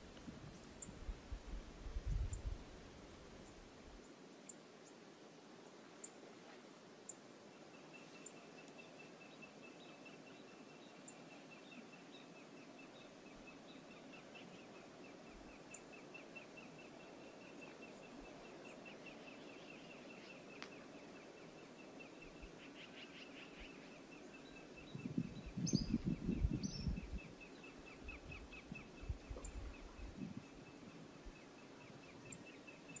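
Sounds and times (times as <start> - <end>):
wind buffeting microphone: 0.0 - 2.8, 24.8 - 27.4, 28.0 - 31.1.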